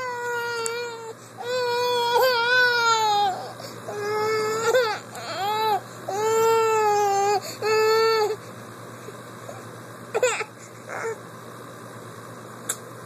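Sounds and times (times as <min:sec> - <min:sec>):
infant crying: 0:00.0 - 0:08.4.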